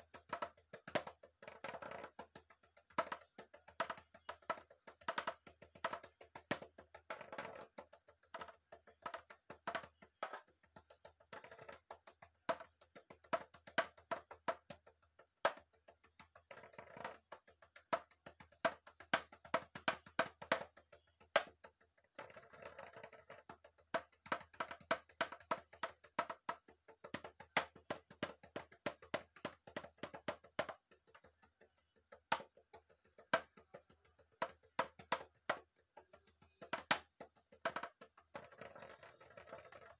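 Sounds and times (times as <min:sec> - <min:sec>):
sticks tapping plastic container: 0:23.6 - 0:39.8.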